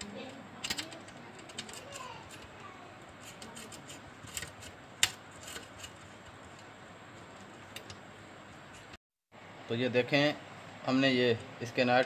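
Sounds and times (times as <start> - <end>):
small metal clicks and scrapes: 0.0 - 2.5, 3.2 - 6.7.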